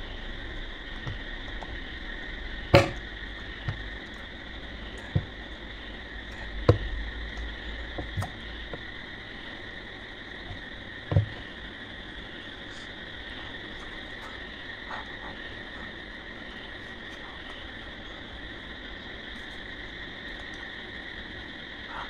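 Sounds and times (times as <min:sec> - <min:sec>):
high-pitched hum: 0:00.0 - 0:22.0
dull knocks: 0:06.6 - 0:07.0, 0:10.5 - 0:11.5.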